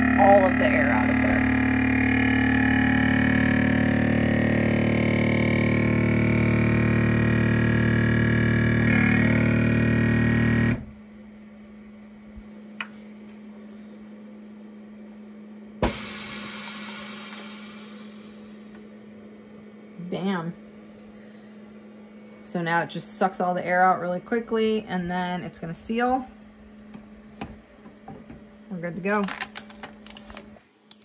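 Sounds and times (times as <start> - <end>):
vacuum pump humming: 0.0 - 31.0
air hissing into chamber: 15.8 - 18.6.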